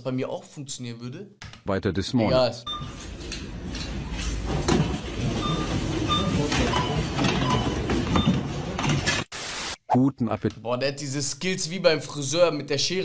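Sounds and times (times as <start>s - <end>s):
barcode scanner beeps: 2.7s - 3.0s, 5.4s - 8.4s.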